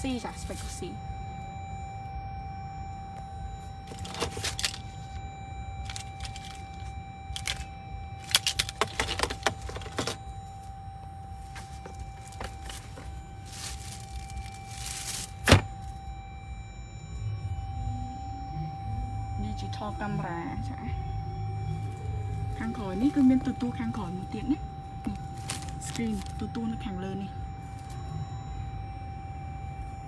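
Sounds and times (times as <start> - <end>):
low cabin hum: 0.0 - 30.0
keys clinking: 3.8 - 5.2, 5.8 - 10.2, 11.4 - 15.7
plastic wrapping rustling: 3.9 - 5.0, 5.8 - 15.9, 25.1 - 26.4.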